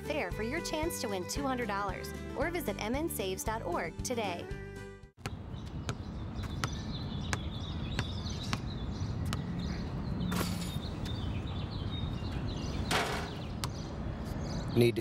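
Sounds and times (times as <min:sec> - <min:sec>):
basketball bouncing on asphalt: 0:05.2 - 0:11.3, 0:12.6 - 0:13.9
birds chirping: 0:05.3 - 0:15.0.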